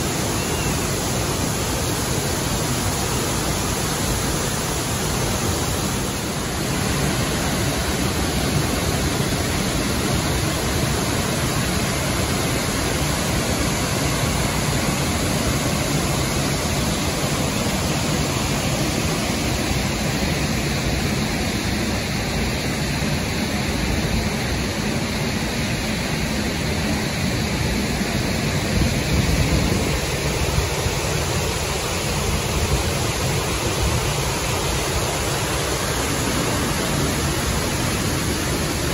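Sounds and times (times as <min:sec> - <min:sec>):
waterfall pouring into pool: 0:00.0 - 0:22.3
creek rapids: 0:00.0 - 0:38.9.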